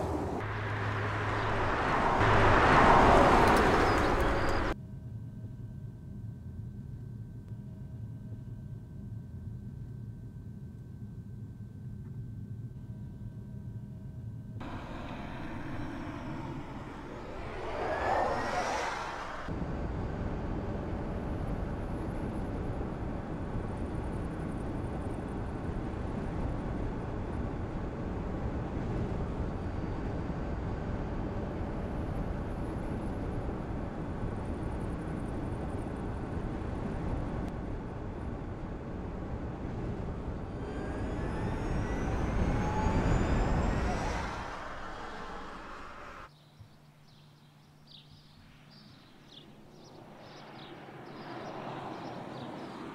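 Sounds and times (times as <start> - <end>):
car road and tyre noise: 0.0 - 4.8, 14.6 - 46.3, 48.2 - 52.9
passing car whine: 0.0 - 4.8, 14.6 - 46.3, 49.5 - 52.9.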